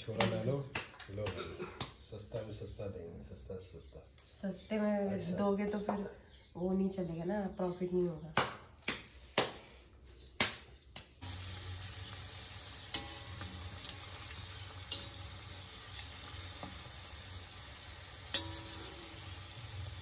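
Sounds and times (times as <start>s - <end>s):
food sizzling in hot oil: 11.2s - 20.0s.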